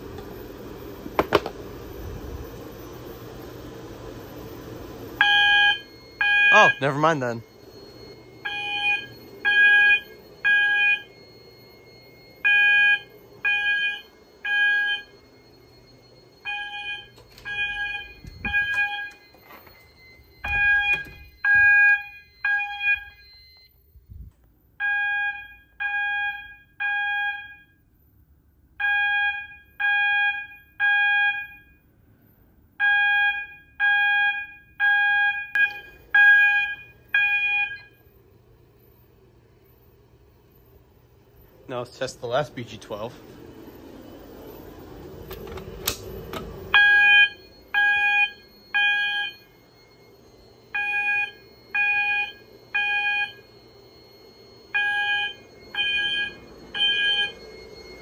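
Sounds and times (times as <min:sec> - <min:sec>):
fire alarm horn beeps: 0:05.1 - 0:28.2, 0:28.8 - 0:38.2, 0:45.2 - 0:58.0.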